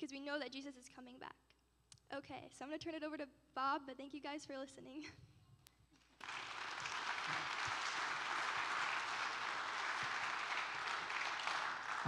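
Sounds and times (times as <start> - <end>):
congregation applauding: 6.2 - 12.0.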